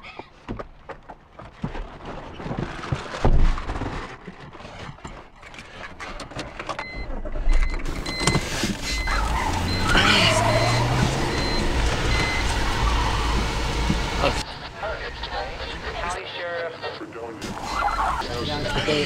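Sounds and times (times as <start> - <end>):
rustling and clicks inside car: 0.0 - 14.4
car engine starting and running: 6.0 - 16.1, 17.4 - 19.0
electronic warning chime: 6.9 - 12.6.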